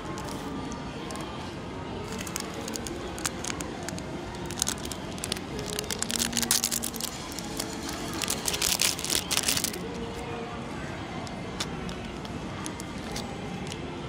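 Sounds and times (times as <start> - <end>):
plastic wrappers crinkling: 2.0 - 10.2.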